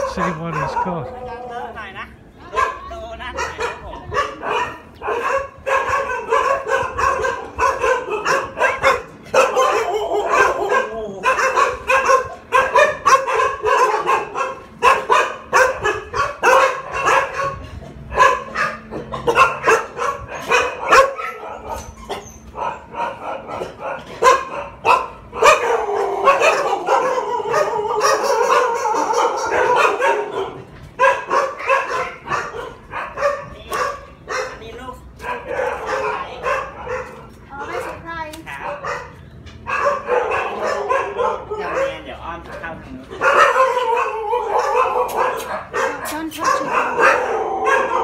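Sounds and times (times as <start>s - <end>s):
dogs howling: 0.0s - 38.0s, 38.6s - 48.0s
dogs barking: 0.0s - 48.0s.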